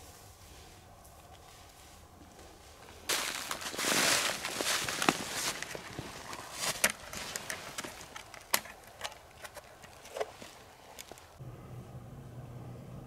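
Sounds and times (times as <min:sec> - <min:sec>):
clothing rustling: 0:02.5 - 0:11.4.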